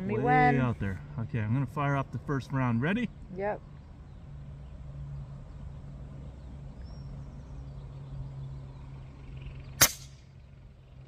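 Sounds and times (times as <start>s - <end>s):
air rifle shot crack: 9.8s - 10.2s.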